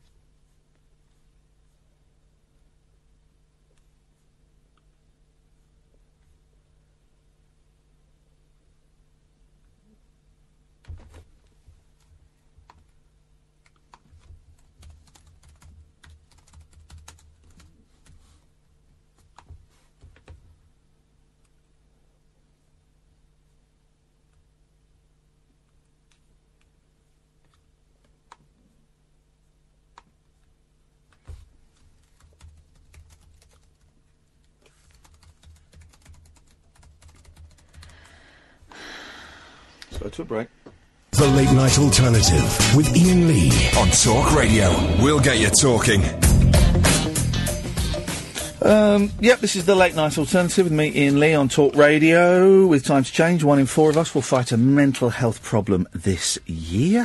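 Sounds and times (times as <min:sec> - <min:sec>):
faint keyboard typing: 0:10.8 - 0:18.5, 0:19.1 - 0:20.7, 0:27.4 - 0:28.8, 0:29.9 - 0:38.2.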